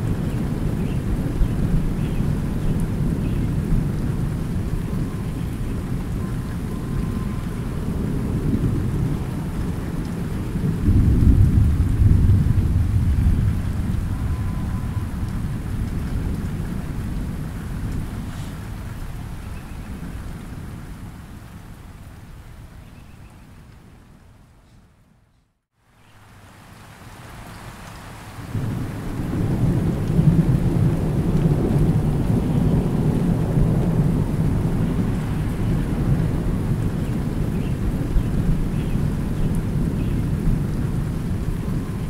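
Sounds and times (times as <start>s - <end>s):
thunder rumbling: 0.0s - 20.5s, 28.5s - 42.0s
light rain on pond water: 0.0s - 42.0s.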